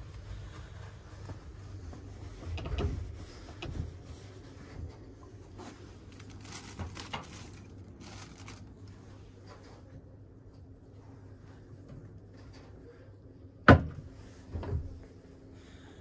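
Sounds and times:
steady low hum: 0:00.0 - 0:16.0
knocks and rustles: 0:01.1 - 0:08.7
plastic bag crinkling: 0:06.0 - 0:09.0.

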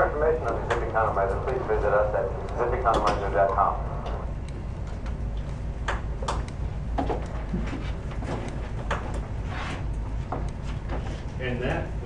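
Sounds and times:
faint clicks and knocks: 0:00.0 - 0:11.4
low hum: 0:00.0 - 0:12.0.

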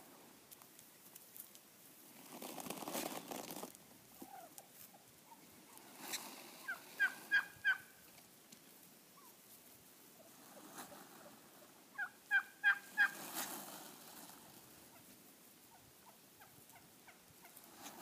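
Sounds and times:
soft short turkey calls: 0:04.1 - 0:08.2, 0:09.1 - 0:18.0
turkey gobbling: 0:04.2 - 0:08.0, 0:10.2 - 0:13.4, 0:14.8 - 0:17.6.

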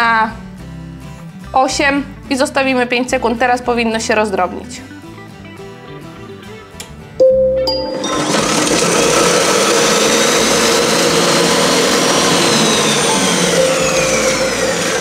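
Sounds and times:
food processor blade spinning: 0:07.9 - 0:15.0.

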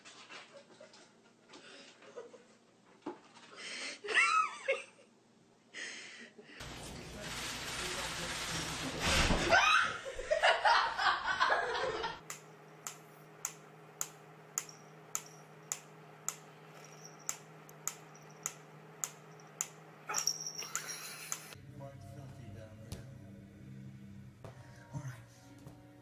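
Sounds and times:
person laughing: 0:04.0 - 0:05.1, 0:09.5 - 0:12.2, 0:20.6 - 0:21.6.

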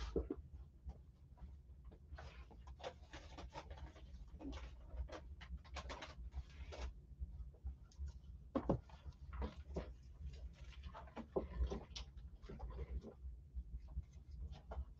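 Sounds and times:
packaging rustling and scratching: 0:01.9 - 0:07.0.

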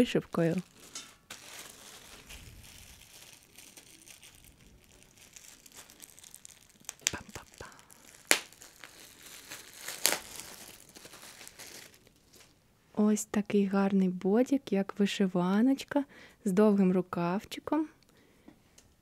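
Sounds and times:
plastic bag crinkling: 0:00.0 - 0:12.6.

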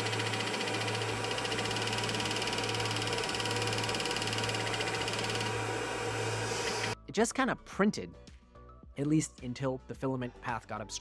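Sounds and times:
printer fans and motors humming: 0:00.0 - 0:07.0.

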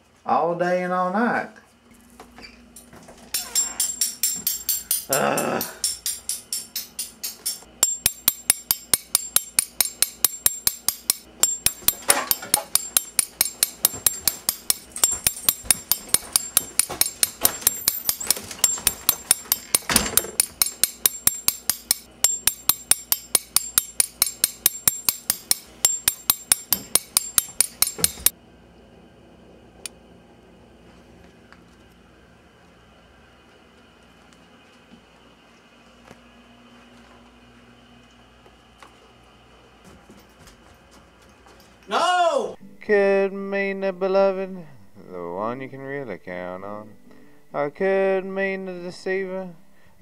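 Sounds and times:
faint hum: 0:00.0 - 0:50.0
metal spoon tapping a coin: 0:05.8 - 0:28.3.

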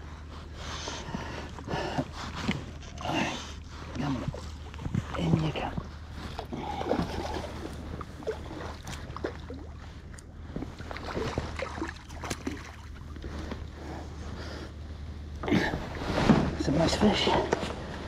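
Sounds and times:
steady low rumble: 0:00.0 - 0:18.0
fish splashing in water: 0:06.3 - 0:09.8, 0:10.7 - 0:13.2.

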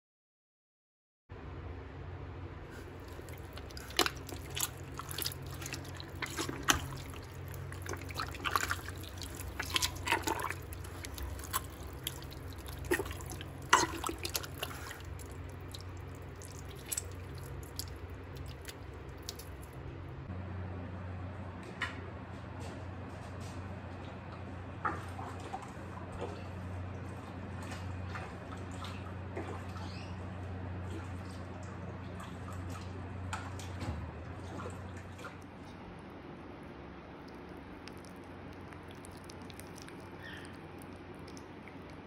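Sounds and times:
steady low hum: 0:01.3 - 0:42.0
wet clay squelching: 0:02.8 - 0:19.8, 0:37.2 - 0:42.0.

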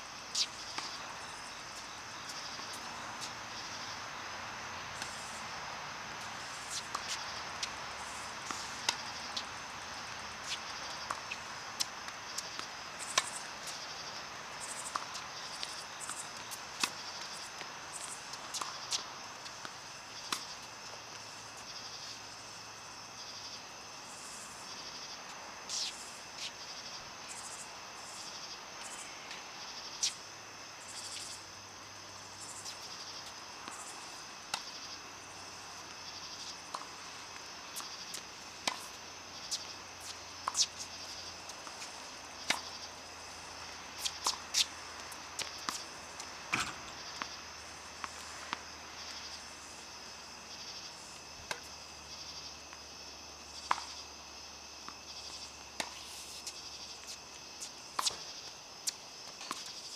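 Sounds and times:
insects chirring: 0:00.0 - 0:59.9
tennis balls being struck: 0:45.4 - 0:48.7.

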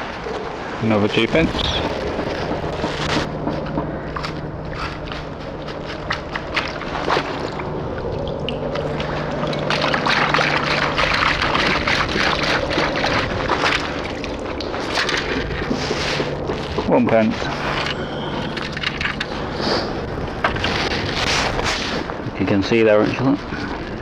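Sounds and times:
sand and water pouring through scoop: 0:05.8 - 0:17.7.

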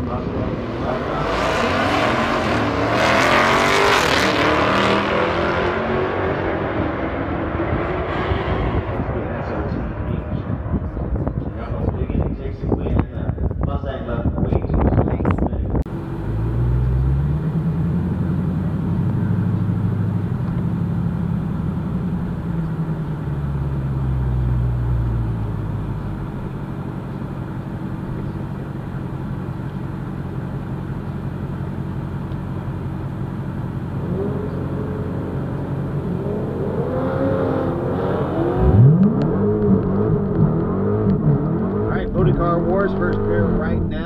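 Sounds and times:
drag cars accelerating: 0:00.0 - 0:11.6, 0:15.9 - 0:44.0
car engine idling: 0:15.9 - 0:37.0.

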